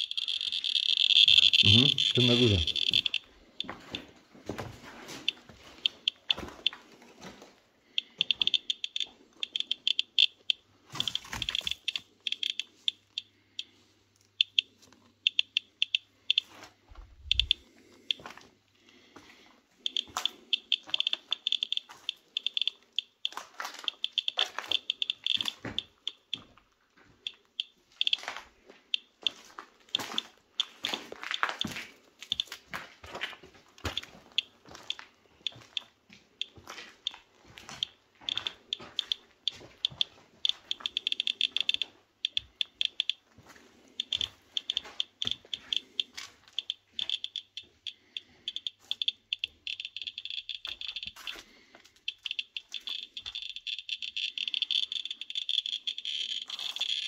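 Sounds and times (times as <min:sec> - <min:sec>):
dosimeter clicking: 0:00.0 - 0:03.3, 0:05.8 - 0:06.7, 0:08.0 - 0:13.7, 0:14.3 - 0:16.4, 0:17.2 - 0:18.2, 0:19.8 - 0:26.4, 0:27.2 - 0:28.2, 0:37.8 - 0:43.2, 0:44.0 - 0:57.0
footsteps crunching over rubble: 0:03.3 - 0:07.8, 0:28.2 - 0:40.4, 0:43.3 - 0:44.9.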